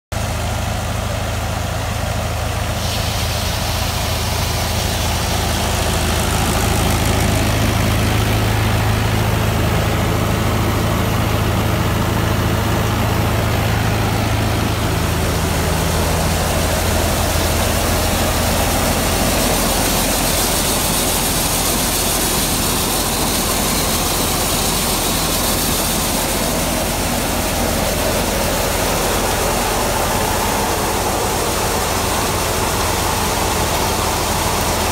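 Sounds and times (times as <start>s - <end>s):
diesel tractor engine running: 0.1s - 34.9s
threshing machine rushing: 2.8s - 34.9s.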